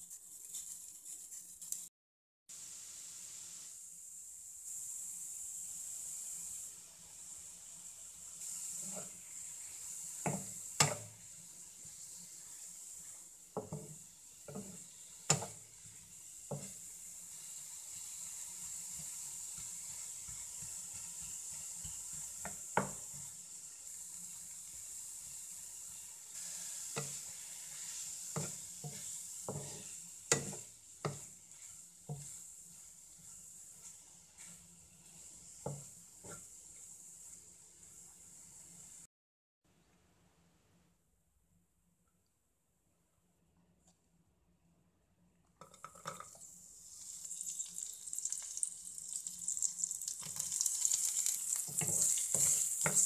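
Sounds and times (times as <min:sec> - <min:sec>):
vegetables sizzling in oil: 0:02.5 - 0:39.1, 0:46.0 - 0:53.0
spatula knocking against pan: 0:13.6 - 0:15.6, 0:28.4 - 0:31.3.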